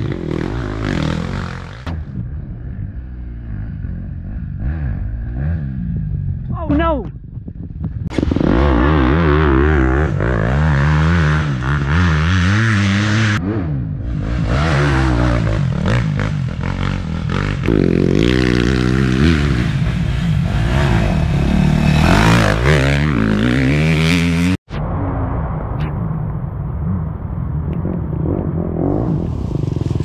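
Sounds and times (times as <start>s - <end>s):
dirt bike engines revving: 0.0s - 7.0s, 7.8s - 24.6s.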